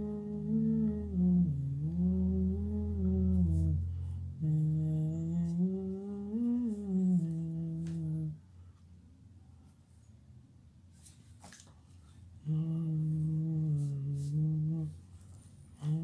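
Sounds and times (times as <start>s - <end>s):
person humming a tune: 0.0s - 8.5s, 12.4s - 15.0s, 15.8s - 16.0s.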